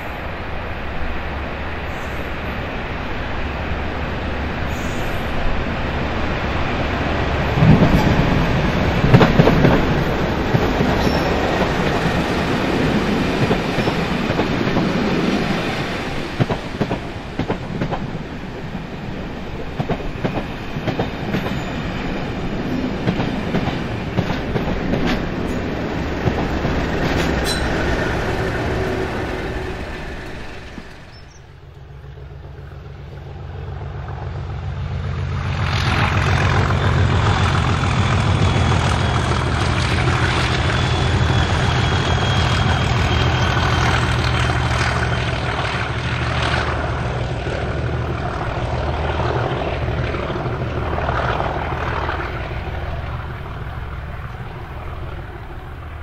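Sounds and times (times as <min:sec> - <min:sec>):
diesel locomotive engines: 0:00.0 - 0:56.0
wheels clicking over rail joints: 0:19.6 - 0:28.1.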